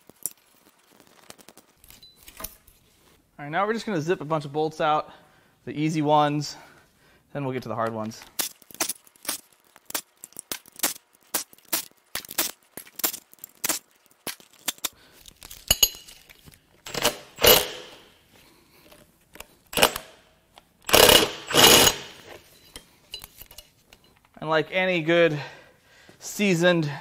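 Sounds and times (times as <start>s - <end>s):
metal tools clinking: 14.4s - 18.0s, 19.7s - 20.2s, 20.9s - 24.2s
cordless power tool bursts: 16.9s - 18.1s, 19.7s - 20.2s, 20.9s - 22.4s.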